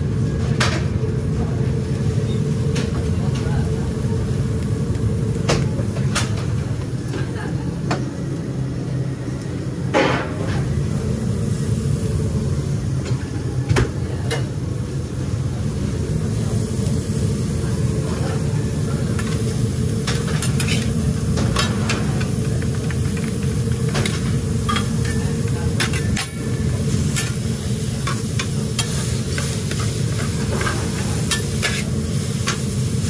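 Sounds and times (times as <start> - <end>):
kitchen hum: 0.0 - 33.0
meat and vegetables sizzling: 0.8 - 33.0
metal spatulas scraping griddle: 20.1 - 22.0.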